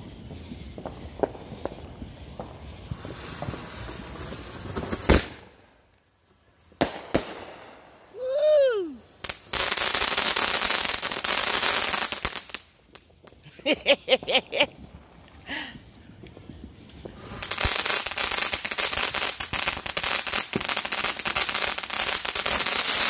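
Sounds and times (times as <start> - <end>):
firework crackling: 0.0 - 23.0
sharp crack: 6.8 - 8.6
hiss of spraying sparks: 17.0 - 23.0.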